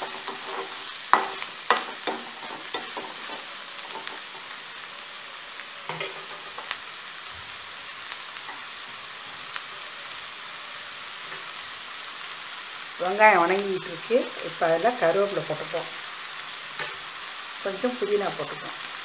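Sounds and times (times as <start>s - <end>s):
spatula scraping pan: 0.0s - 4.6s
onions sizzling in oil: 0.0s - 19.0s.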